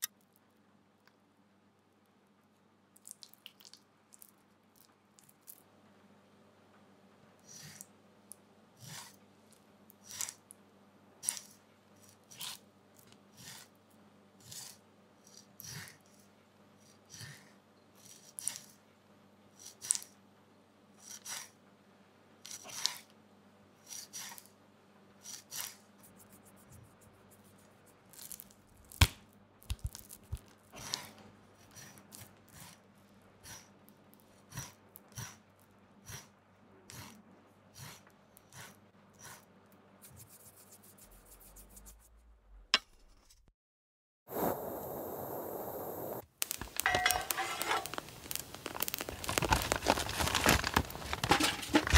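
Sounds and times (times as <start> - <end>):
steady hiss: 44.3 - 49.5.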